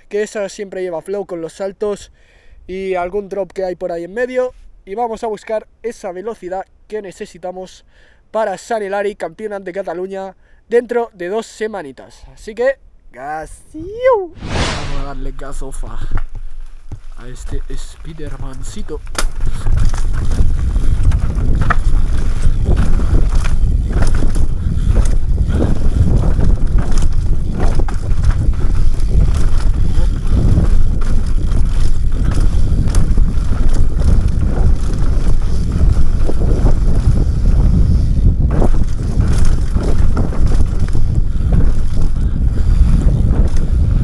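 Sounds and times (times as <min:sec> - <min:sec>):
wind rumbling on microphone: 0:13.7 - 0:44.0
bike knocks and rattles: 0:16.2 - 0:43.9.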